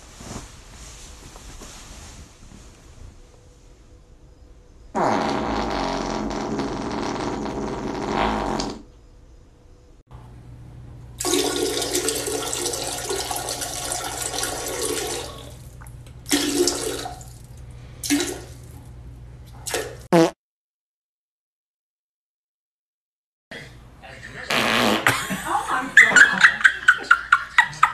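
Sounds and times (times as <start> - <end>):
farts: 4.9 - 8.9, 20.1 - 20.4, 24.5 - 25.2.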